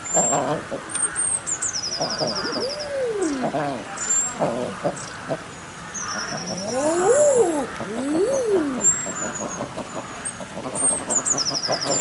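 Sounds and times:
eider duck cooing call: 2.0 - 5.4.

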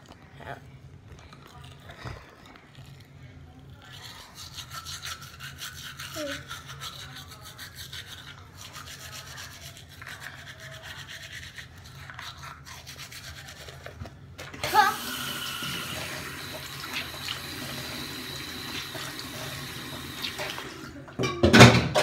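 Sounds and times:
toothbrush scrubbing teeth: 0.0 - 21.0.

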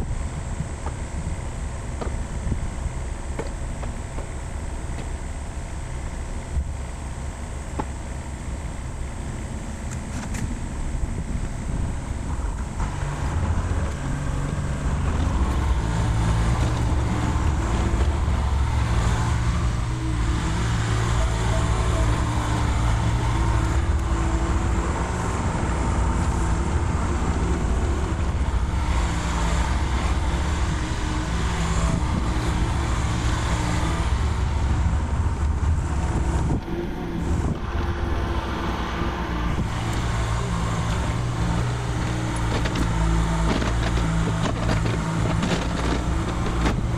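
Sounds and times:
excavator diesel engine under load: 0.0 - 46.9.

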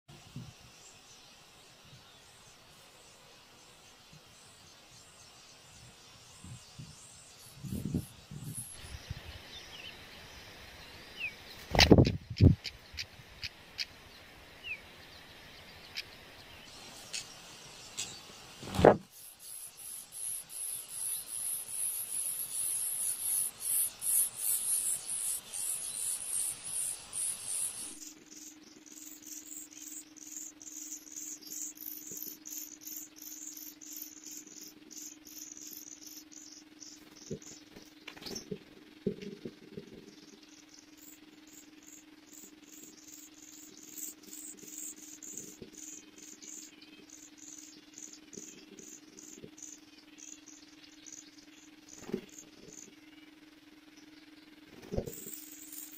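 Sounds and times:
faint steady hum: 0.1 - 55.9
very high-pitched chirps: 19.2 - 38.4.

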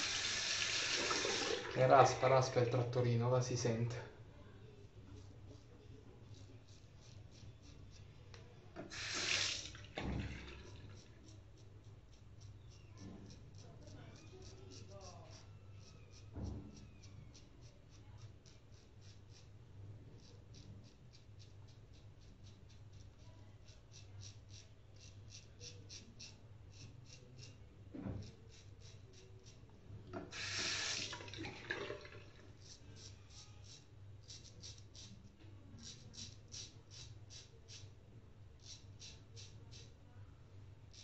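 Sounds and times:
running water: 0.0 - 2.8, 8.9 - 10.6, 30.3 - 32.4
razor scratching stubble: 5.2 - 8.1, 8.9 - 9.6, 10.6 - 19.5, 20.2 - 27.6, 28.2 - 31.1, 32.5 - 37.9, 38.6 - 39.9.

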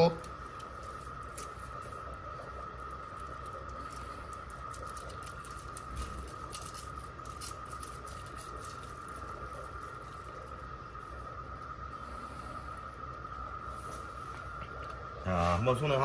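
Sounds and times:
constant high whine: 0.0 - 16.0
steady low hum: 0.0 - 16.0
claws clicking on tile floor: 2.7 - 9.9.

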